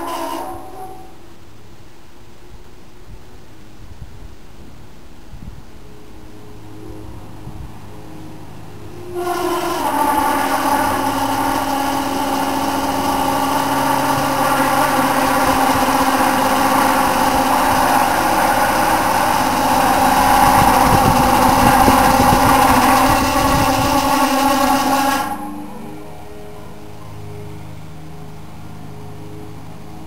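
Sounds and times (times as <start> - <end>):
fan motor whine: 0.0 - 30.0
fan rattling and knocking: 9.6 - 25.4.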